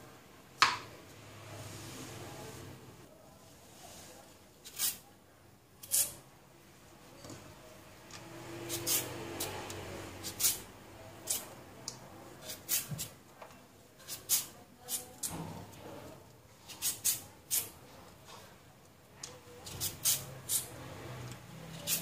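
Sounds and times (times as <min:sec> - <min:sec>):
peeler scraping carrot: 0:04.6 - 0:05.0, 0:05.8 - 0:06.2, 0:08.6 - 0:09.6, 0:10.2 - 0:11.5, 0:12.4 - 0:13.2, 0:16.7 - 0:17.8, 0:19.6 - 0:20.8, 0:21.7 - 0:22.0.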